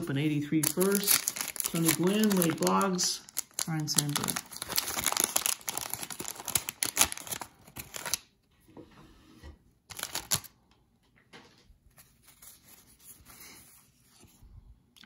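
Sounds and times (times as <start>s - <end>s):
paper wrapper crinkling and tearing: 0.5s - 8.3s, 9.9s - 10.5s
cards rustling: 0.6s - 8.2s, 9.9s - 10.5s.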